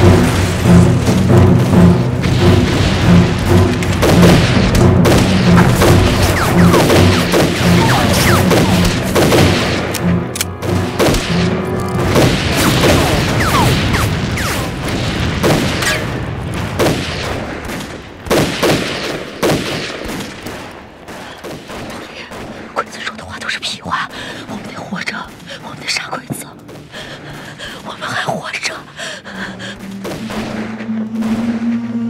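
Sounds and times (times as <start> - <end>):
explosions: 0.0 - 10.0, 10.6 - 22.8, 29.7 - 31.9
dramatic music: 0.0 - 20.0, 20.6 - 32.0
gunfire: 0.0 - 23.1, 29.6 - 31.9.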